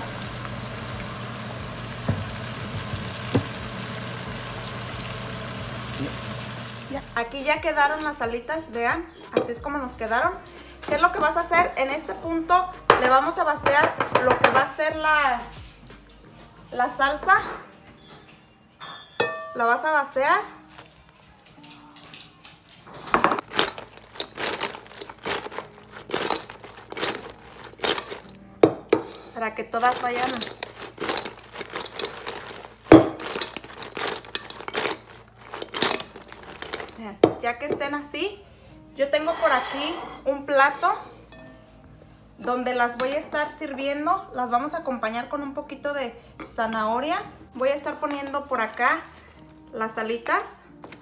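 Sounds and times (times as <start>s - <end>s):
range hood fan humming: 0.0s - 6.9s
oil bubbling and sizzling: 0.0s - 7.0s, 30.0s - 36.9s.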